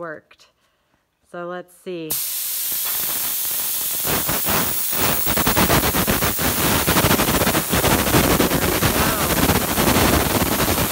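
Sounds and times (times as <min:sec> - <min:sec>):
compressed air hissing: 0:02.1 - 0:10.9
paper pinwheel fluttering: 0:04.0 - 0:10.9.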